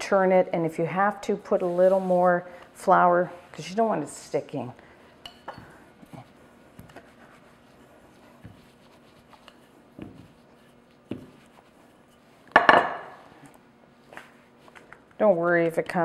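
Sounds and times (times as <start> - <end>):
pastry sheet rustling: 6.0 - 12.4
rolling pin rolling pastry: 6.0 - 12.5.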